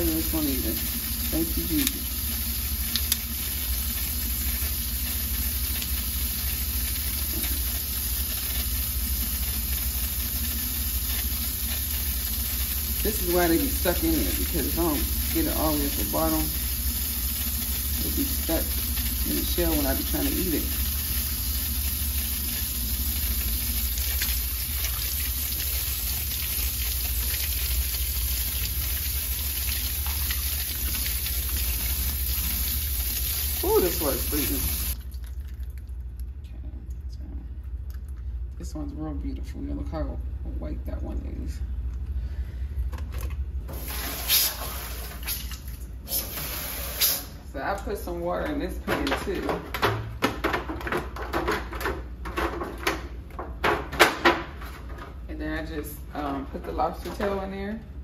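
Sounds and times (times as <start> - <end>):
faucet water splashing into sink: 0.0 - 36.2
tap water splashing into sink: 1.4 - 2.1, 22.5 - 35.8.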